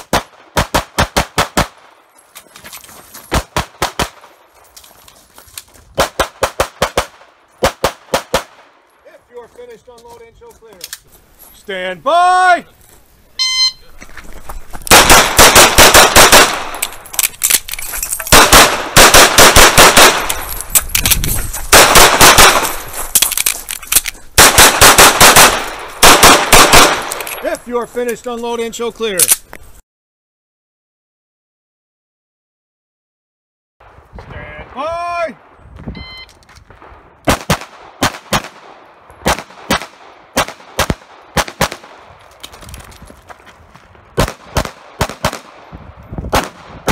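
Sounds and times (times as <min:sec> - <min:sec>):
pistol shots: 0:00.0 - 0:01.9, 0:03.3 - 0:04.4, 0:06.0 - 0:08.7, 0:14.9 - 0:16.8, 0:18.3 - 0:20.5, 0:21.7 - 0:22.9, 0:24.4 - 0:27.4, 0:36.7 - 0:42.1, 0:44.2 - 0:45.7, 0:46.3 - 0:46.9
shot timer beep: 0:13.4 - 0:13.8, 0:35.9 - 0:36.4.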